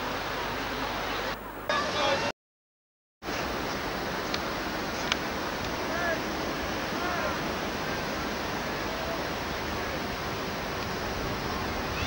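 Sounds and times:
strong wind rushing: 9.6 - 12.0.

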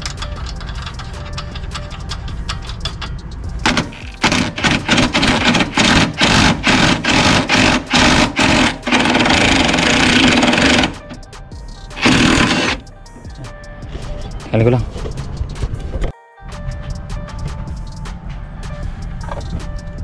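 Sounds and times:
cordless impact driver rattling: 3.7 - 11.2, 12.0 - 12.8.

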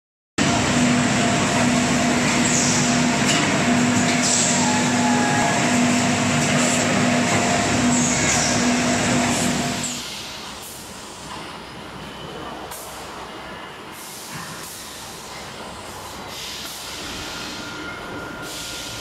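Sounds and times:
packing machines running: 0.4 - 10.1
steady machine hum: 0.4 - 11.0.

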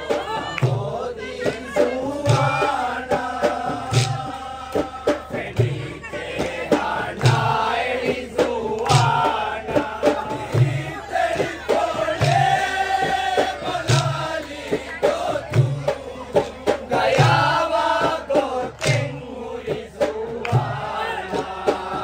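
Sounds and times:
low drum beat: 0.0 - 22.0
men chanting in unison: 0.0 - 22.0
sharp clacks: 18.8 - 19.1.

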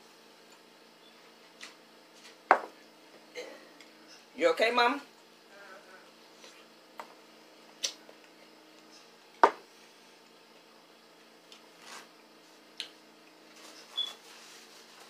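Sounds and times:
faint hum: 0.0 - 15.0
knock on table: 2.5 - 2.7, 9.4 - 9.6.

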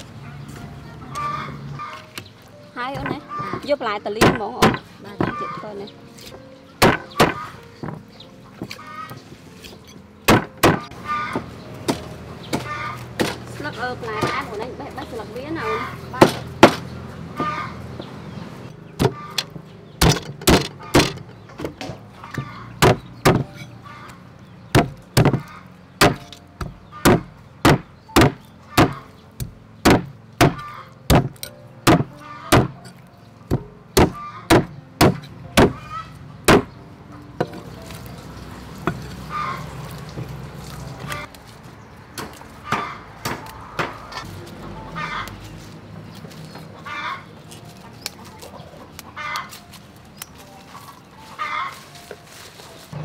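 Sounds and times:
cleaver chopping on wooden block: 6.8 - 8.0, 10.3 - 10.9, 16.2 - 16.8, 22.3 - 23.7, 24.7 - 32.9, 33.5 - 35.8, 36.5 - 36.7, 42.2 - 44.0.

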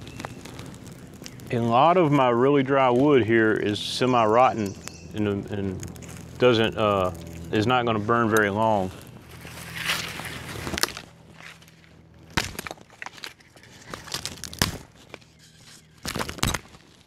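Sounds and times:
dry leaves and twigs rustling: 0.0 - 17.0
wood fire crackling and popping: 0.0 - 17.0.

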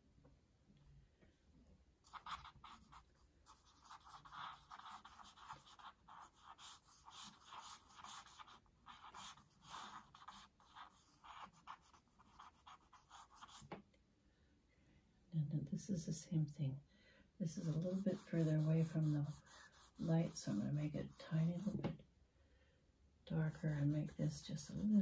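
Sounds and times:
charcoal scratching on paper: 2.1 - 13.6, 17.6 - 21.8, 23.5 - 25.0.

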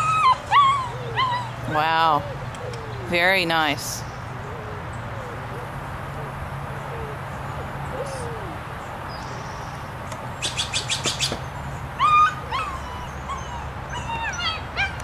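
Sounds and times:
puppy yipping and whining: 0.0 - 1.8, 12.0 - 15.0.

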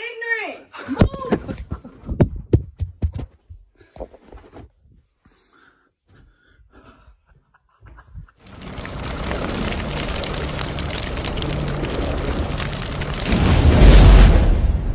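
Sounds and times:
fire and spark crackling: 8.4 - 14.9
low rumbling drone: 8.5 - 14.9.

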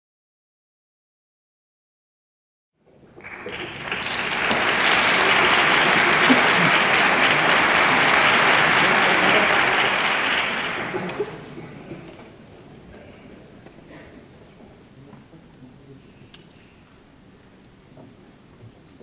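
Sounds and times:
audience applause: 3.1 - 14.4.

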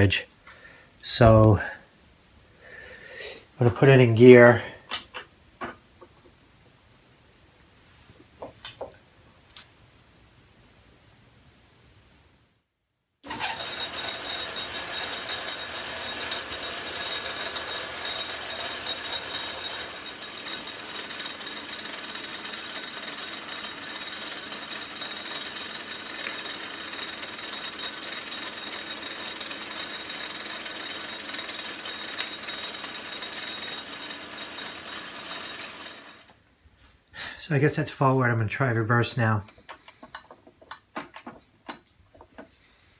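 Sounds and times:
metal lathe gear rattle and whine: 13.2 - 36.4.

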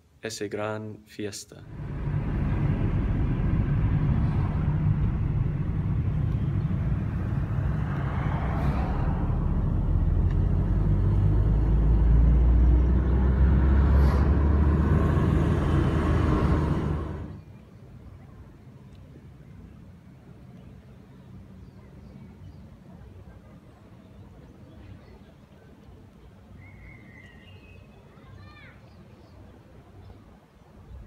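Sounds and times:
car engine and road rumble: 1.6 - 17.4.

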